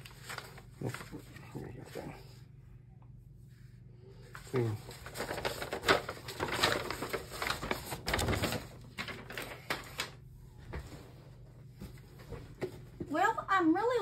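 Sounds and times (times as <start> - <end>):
paper rustling and crinkling: 0.0 - 2.3, 4.2 - 12.8.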